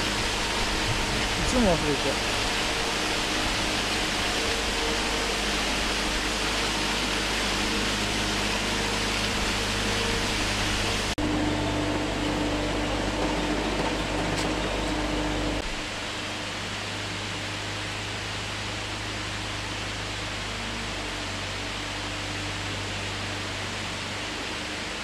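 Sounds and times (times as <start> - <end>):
waterfall rushing into pond: 0.0 - 11.4, 13.1 - 25.0.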